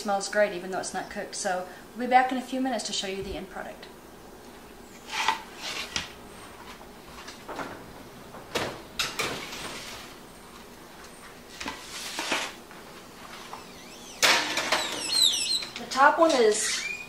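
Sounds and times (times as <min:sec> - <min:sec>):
sheet pans sliding onto metal racks: 0:08.6 - 0:10.2, 0:11.6 - 0:12.6.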